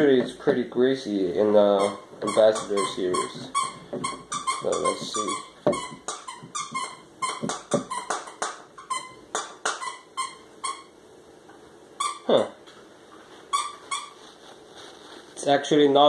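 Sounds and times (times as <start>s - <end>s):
falling squeak: 1.7s - 11.0s, 12.0s - 12.5s, 13.5s - 14.4s.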